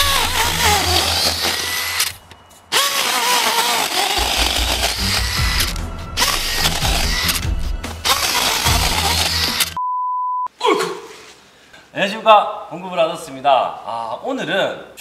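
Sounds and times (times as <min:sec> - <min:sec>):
cordless drill motor under load: 0:00.0 - 0:09.8.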